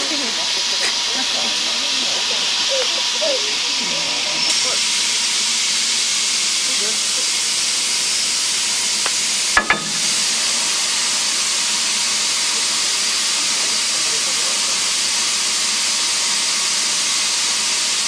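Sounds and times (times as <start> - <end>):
steam hissing: 0.0 - 18.0
sharp knocks: 9.6 - 10.3.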